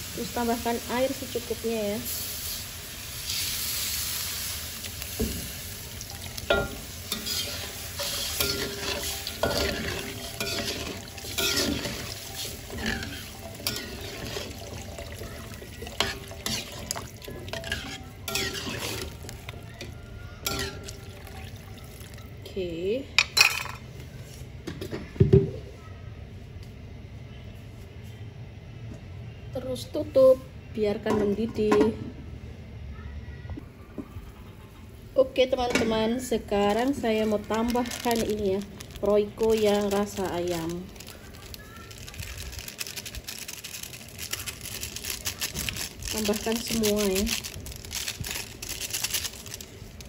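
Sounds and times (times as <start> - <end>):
water hissing in a hot wok: 0.0 - 19.2
metal spatula scraping a wok: 7.1 - 14.6, 17.5 - 19.2.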